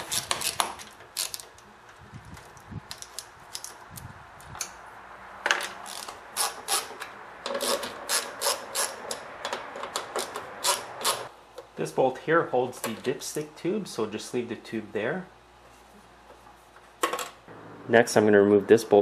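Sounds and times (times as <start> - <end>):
ratchet wrench clicking: 5.8 - 9.2, 10.2 - 11.2.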